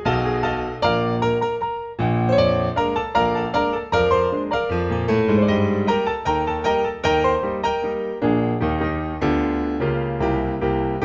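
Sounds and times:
ragtime piano tune: 0.0 - 11.0.

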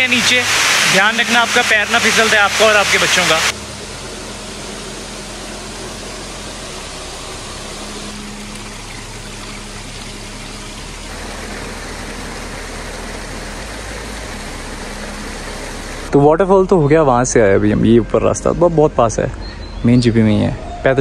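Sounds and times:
stream cascading over rocks: 0.0 - 3.6, 4.6 - 16.1
waterfall rushing: 0.0 - 16.2.

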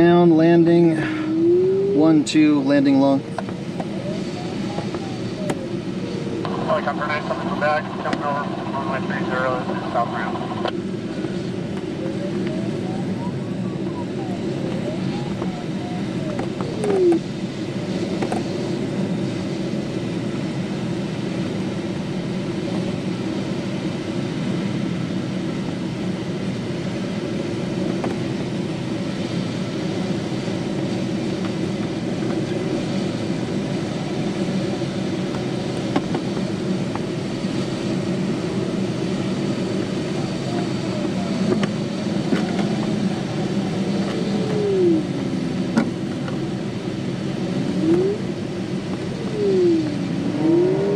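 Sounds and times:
falling tone: 1.0 - 2.3, 47.7 - 48.3, 49.1 - 50.9
airflow rushing over canopy: 28.4 - 50.9.

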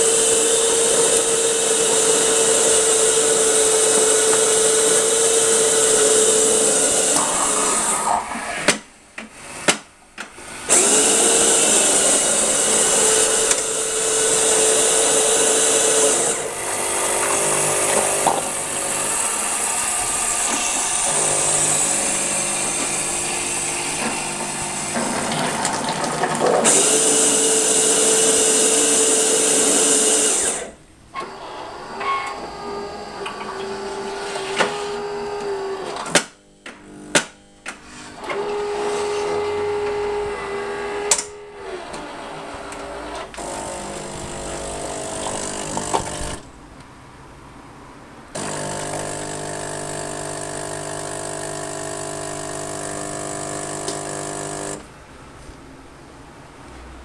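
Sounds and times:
machine humming: 10.4 - 46.5, 48.3 - 54.9.

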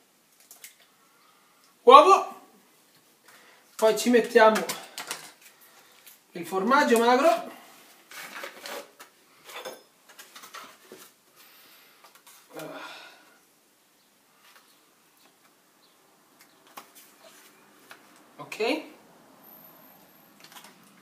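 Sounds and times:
paper wrapping rustling: 7.9 - 9.2.

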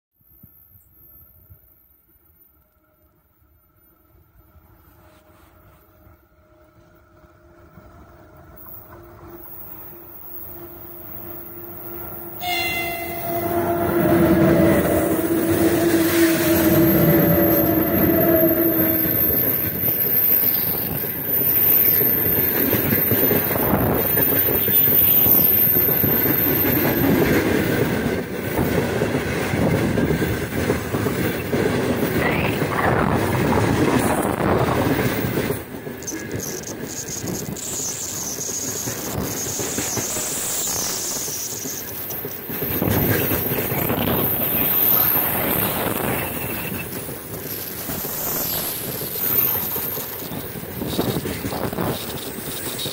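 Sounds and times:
steady locomotive tone: 0.2 - 52.9
freight train wheels rumbling: 5.0 - 52.9
thin high squeal: 9.4 - 27.0.

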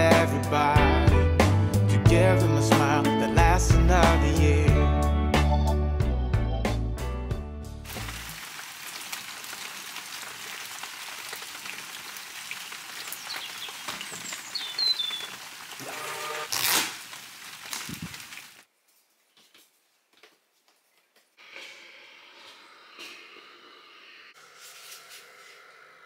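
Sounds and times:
rain on paved patio: 7.9 - 18.7
bird chirps: 13.2 - 15.4.

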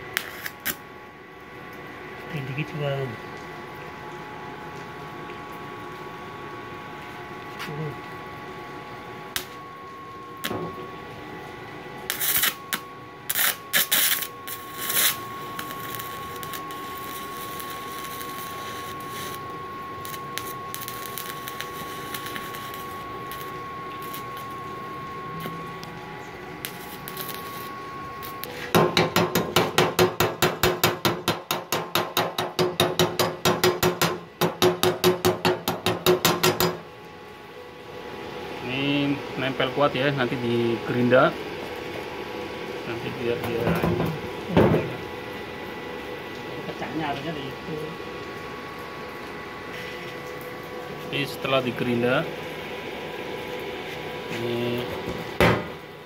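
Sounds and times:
welding arc hissing: 0.0 - 0.8, 12.1 - 24.6, 25.3 - 36.7
welding arc crackles: 0.0 - 0.9, 9.3 - 9.6, 12.0 - 31.2
faint high whine: 9.2 - 28.7, 54.2 - 55.0.

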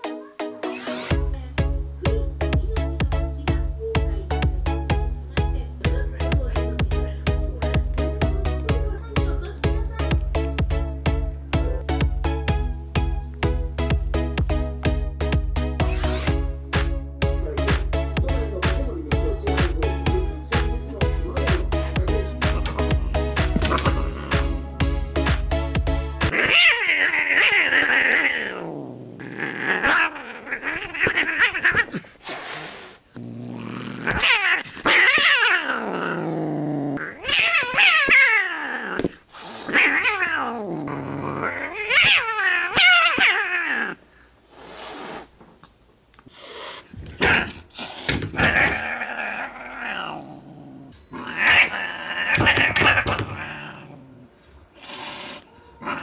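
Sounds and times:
cats yowling and growling: 26.3 - 32.1, 33.9 - 44.0, 48.3 - 56.0.

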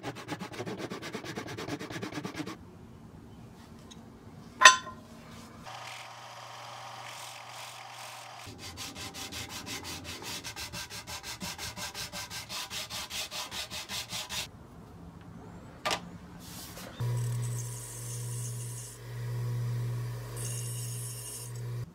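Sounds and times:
wood rasping on sanding belt: 7.0 - 14.5
belt sander motor hum: 17.0 - 21.9.

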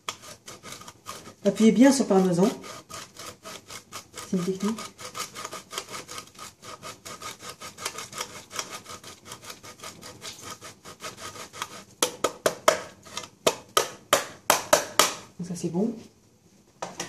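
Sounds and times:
cheese scraping on box grater: 0.0 - 12.0.

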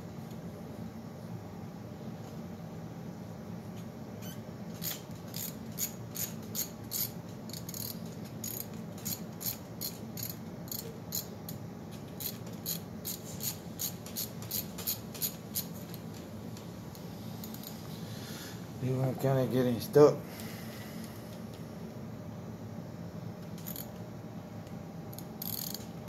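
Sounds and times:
steady low hum: 0.0 - 26.0
ratchet wrench clicking: 4.8 - 11.6, 12.2 - 15.7, 23.6 - 23.9, 25.1 - 25.9.

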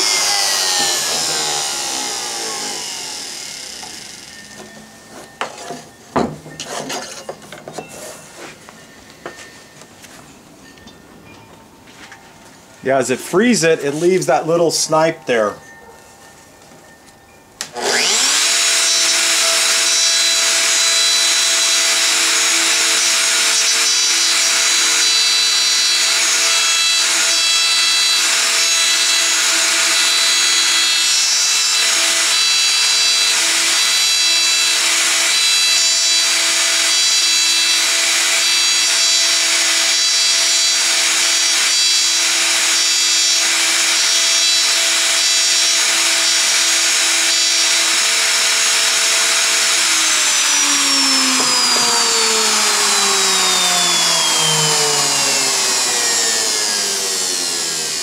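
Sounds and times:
router bit cutting plywood: 0.0 - 4.9, 17.6 - 58.0
router motor whine: 0.0 - 5.8, 17.6 - 58.0.

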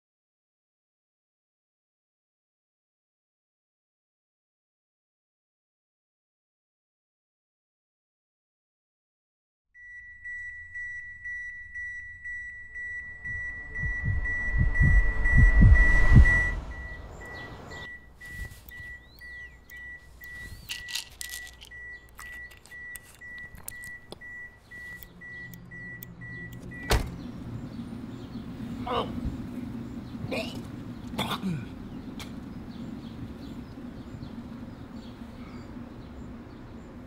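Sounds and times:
high electronic tone: 9.8 - 27.0
car warning chime: 9.8 - 28.4
low rumble: 10.8 - 18.0
keys jingling: 18.5 - 25.1
small clicks: 18.6 - 26.7
car door shutting: 26.3 - 27.4.

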